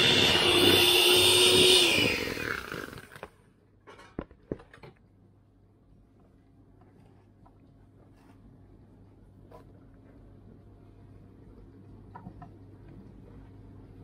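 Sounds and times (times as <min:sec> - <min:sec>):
electric hand mixer whisking batter: 0:00.0 - 0:03.2.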